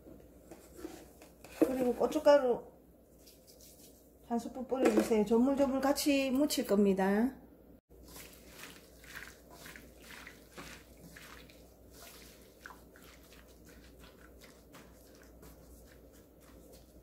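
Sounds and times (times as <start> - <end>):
soft wet squelches of meat: 8.0 - 17.0.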